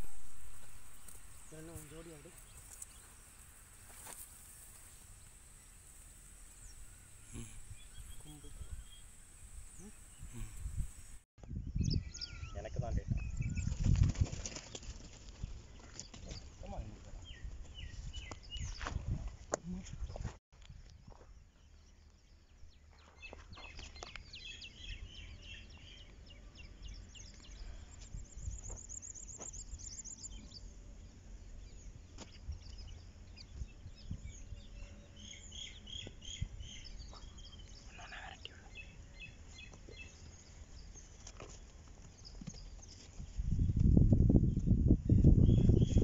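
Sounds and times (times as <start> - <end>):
low rumble: 0.0 - 1.7
small birds chirping: 0.0 - 20.3, 21.6 - 46.0.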